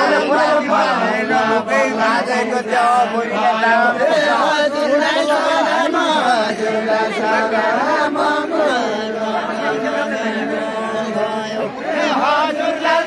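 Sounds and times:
group singing folk song: 0.0 - 13.0.

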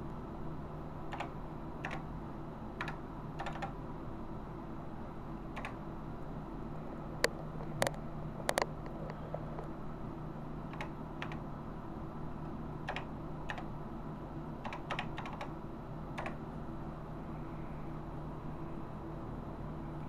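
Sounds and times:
steady low hum: 0.0 - 20.0
keyboard key presses: 1.1 - 2.0, 2.8 - 3.8, 5.6 - 5.8, 10.7 - 11.4, 12.9 - 13.7, 14.6 - 15.5, 16.2 - 16.4.

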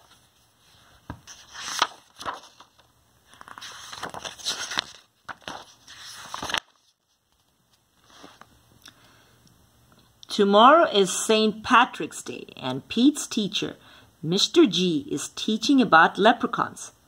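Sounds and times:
book pages rustling: 0.0 - 8.6.

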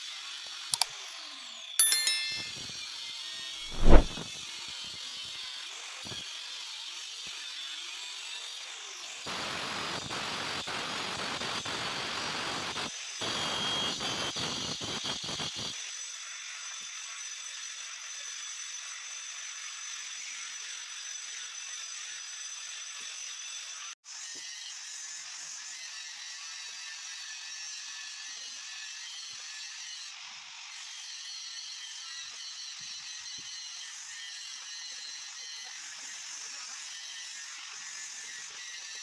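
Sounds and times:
stone cutter cutting stone: 24.4 - 39.0.

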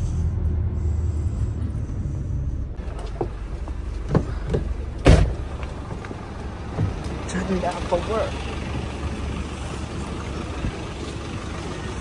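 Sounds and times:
coach engine rumble: 0.0 - 12.0
loud thump: 4.1 - 5.7.

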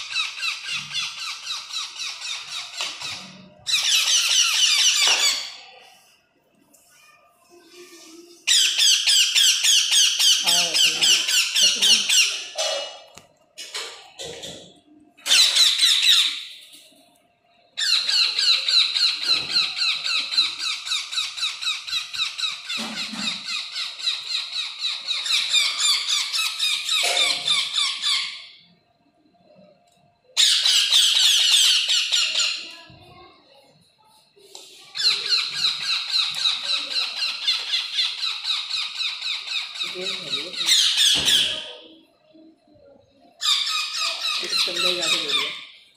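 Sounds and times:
baby parakeets begging calls: 0.1 - 5.4, 8.5 - 12.8, 17.8 - 28.4, 30.4 - 32.7, 35.0 - 41.6, 43.4 - 45.7.

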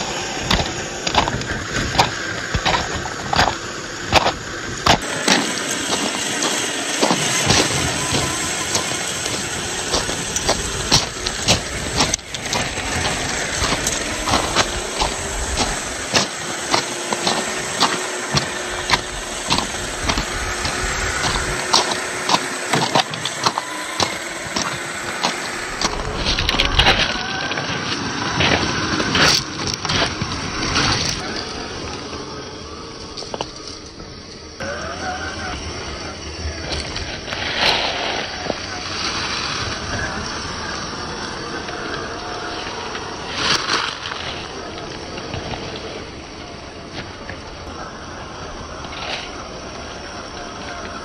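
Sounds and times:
rc car motor hiss: 0.0 - 51.0
sharp knocks and crunches: 0.4 - 31.2.

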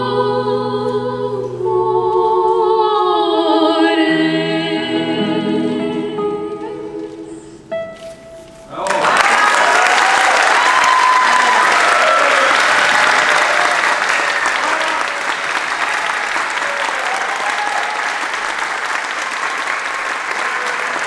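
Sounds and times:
audience applauding: 8.8 - 21.0.

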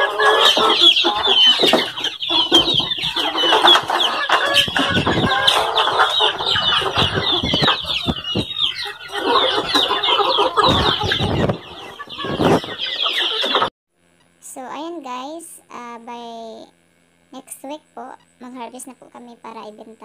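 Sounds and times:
chickens clucking and calling: 0.0 - 13.7.

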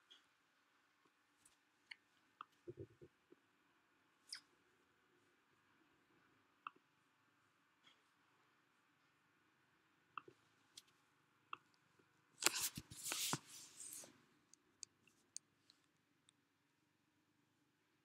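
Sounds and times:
scratchy rustling: 12.4 - 14.1.

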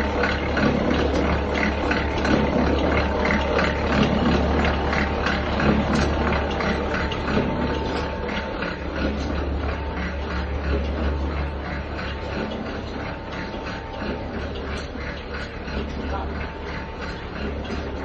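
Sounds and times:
regular clatter: 0.0 - 18.0
thin steady whine: 0.0 - 18.0.

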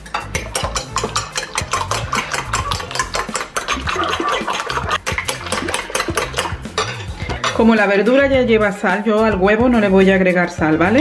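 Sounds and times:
fork whisking eggs in bowl: 0.0 - 8.1.

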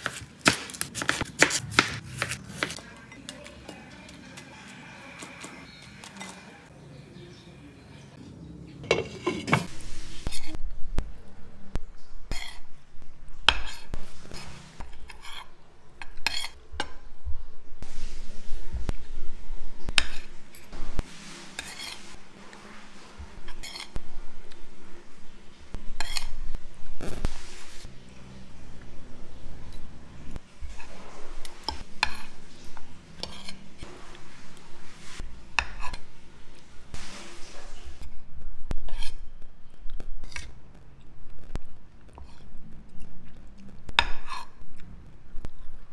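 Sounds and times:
cutlery scraping and clinking on plate: 8.8 - 10.6, 21.4 - 22.8, 23.4 - 24.0, 26.0 - 26.4, 33.2 - 33.6
cutlery scraping on plate: 8.8 - 10.6, 12.3 - 12.7, 13.5 - 17.0, 21.5 - 22.2, 23.4 - 24.0, 26.0 - 26.4, 33.2 - 33.6, 38.8 - 39.4.

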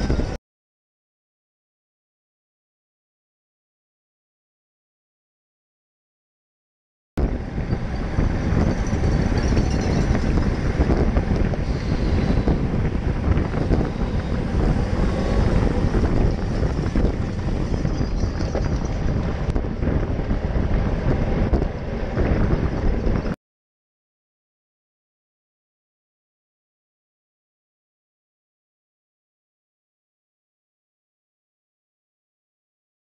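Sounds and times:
wind buffeting microphone: 0.0 - 0.4, 7.2 - 23.4.

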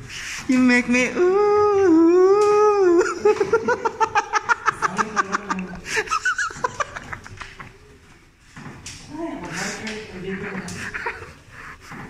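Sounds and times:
person laughing: 2.7 - 7.6.

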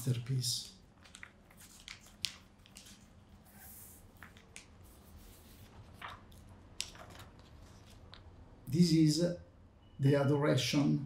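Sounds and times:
paper pages rustling: 0.1 - 8.4.

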